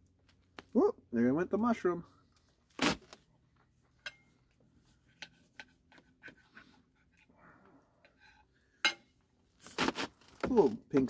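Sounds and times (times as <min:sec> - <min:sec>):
knife and fork on metal plate: 0:04.0 - 0:04.4, 0:05.0 - 0:06.4.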